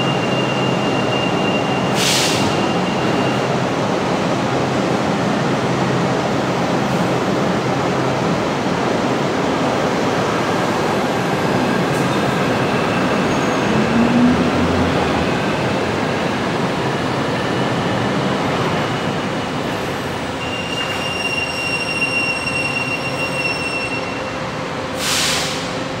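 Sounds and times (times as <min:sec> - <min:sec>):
monorail train running: 0:00.0 - 0:26.0
hiss burst: 0:25.0 - 0:25.8.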